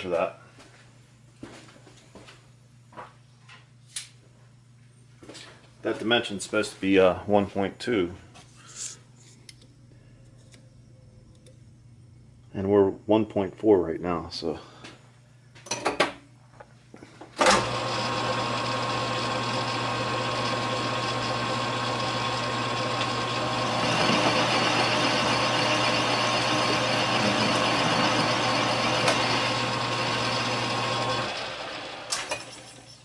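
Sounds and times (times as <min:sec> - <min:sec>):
lathe motor hum and whine: 0:17.4 - 0:32.2.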